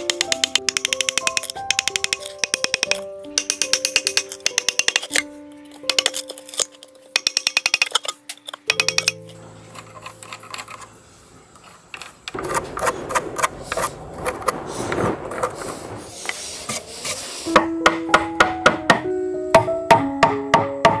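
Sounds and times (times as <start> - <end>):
scraping on bamboo: 2.1 - 17.6.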